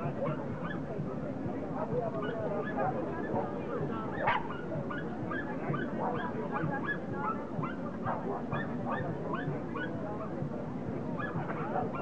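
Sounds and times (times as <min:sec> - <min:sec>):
dogs barking and yapping: 0:04.1 - 0:10.0, 0:11.2 - 0:12.0.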